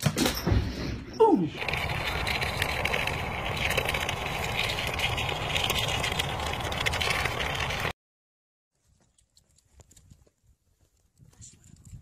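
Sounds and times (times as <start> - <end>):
wind rumble on microphone: 9.8 - 12.0.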